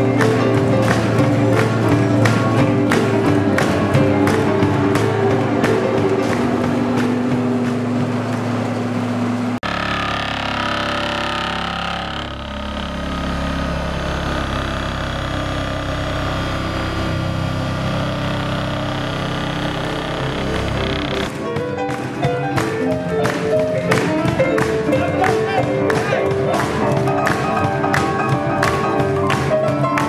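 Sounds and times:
roller compactor engine: 0.0 - 30.0
vibratory hammer droning hum: 0.0 - 30.0.

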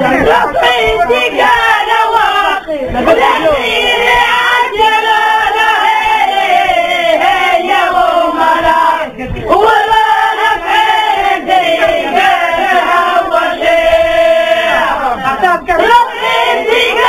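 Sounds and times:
women singing together: 0.0 - 17.0.

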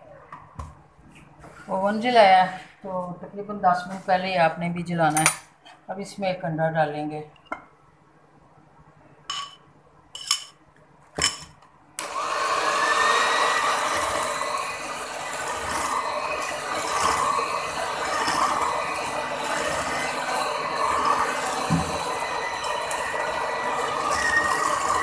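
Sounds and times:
electric hand mixer whining: 12.0 - 25.0.

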